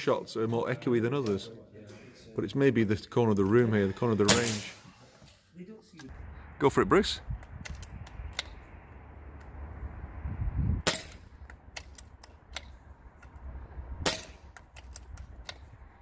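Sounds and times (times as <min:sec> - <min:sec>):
air rifle firing cracks: 0:04.3 - 0:04.8, 0:14.0 - 0:14.6
rifle bolt clicks: 0:07.4 - 0:08.6, 0:10.9 - 0:13.4, 0:14.1 - 0:15.7.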